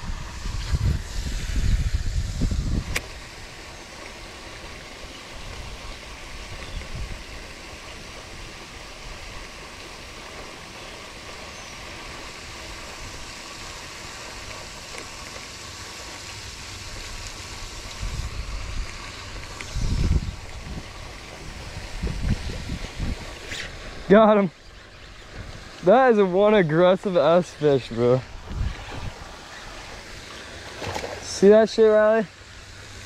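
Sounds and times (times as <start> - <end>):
wind rushing: 0.0 - 3.1, 17.9 - 24.2, 27.6 - 30.0
wind buffeting microphone: 0.0 - 3.6, 5.4 - 7.4, 16.7 - 30.2
sharp click: 2.9 - 3.2.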